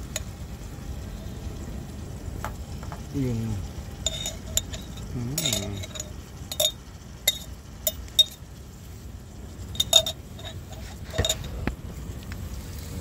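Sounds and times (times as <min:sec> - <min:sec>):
knife clinking on glass jar: 0:04.0 - 0:08.4, 0:09.8 - 0:11.5.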